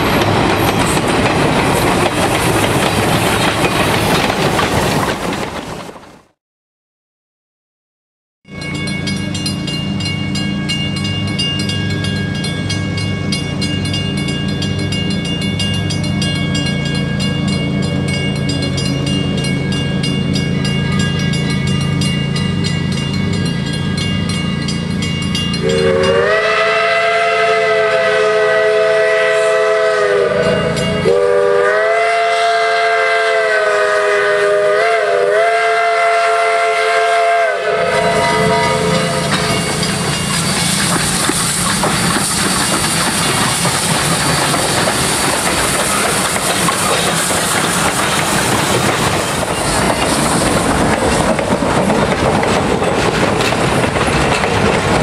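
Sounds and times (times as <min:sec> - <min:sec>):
steam locomotive whistle: 0:25.5 - 0:41.0.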